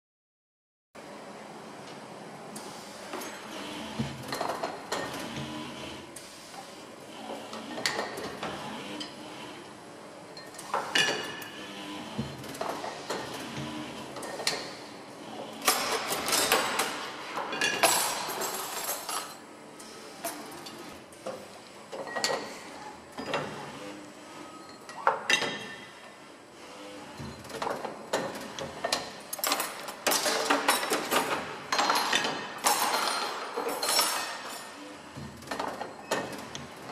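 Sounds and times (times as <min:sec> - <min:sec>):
crockery and trays clattering: 0:15.6 - 0:19.4, 0:27.2 - 0:36.6
crockery and cutlery clattering: 0:29.4 - 0:34.8.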